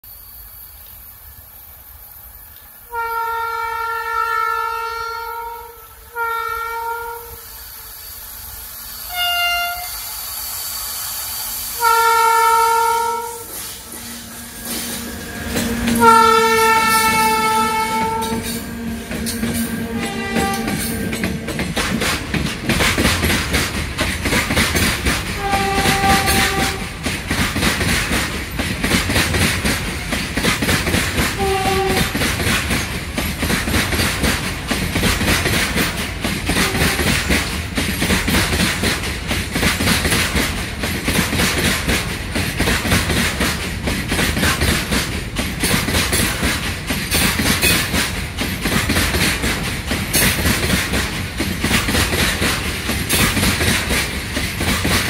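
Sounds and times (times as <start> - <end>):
train horn: 2.9 - 7.6, 9.1 - 10.1, 11.8 - 21.8, 25.3 - 27.1, 31.2 - 32.3, 36.5 - 37.3
train wheels clattering on rails: 11.3 - 55.0.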